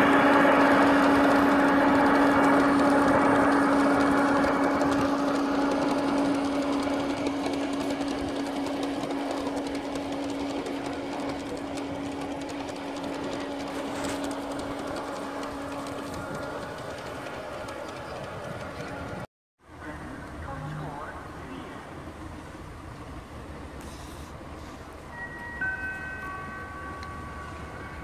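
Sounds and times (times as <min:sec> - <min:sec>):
wheel rattle over rail joints: 0:00.0 - 0:19.3
model locomotive hum: 0:00.0 - 0:28.0.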